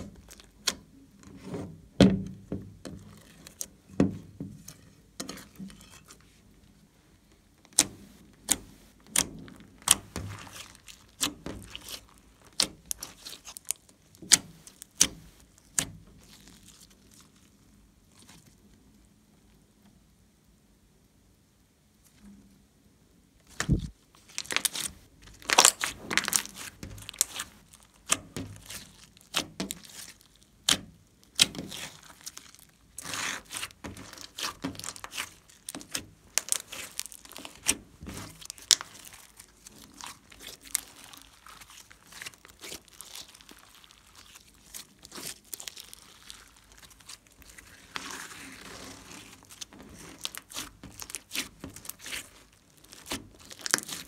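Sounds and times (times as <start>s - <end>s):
slime crackling and popping: 0.0s - 0.9s, 7.7s - 18.7s, 23.4s - 54.0s.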